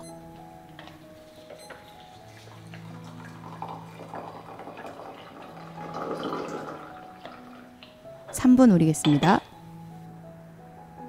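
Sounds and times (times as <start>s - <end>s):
hot water pouring into teapot: 2.2s - 7.9s.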